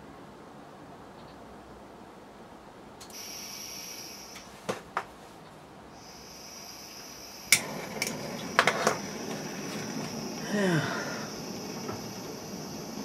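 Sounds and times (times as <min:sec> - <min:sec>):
gas hissing from nozzle: 0:03.1 - 0:04.5, 0:06.0 - 0:13.0
lighter clicking: 0:07.5 - 0:08.2.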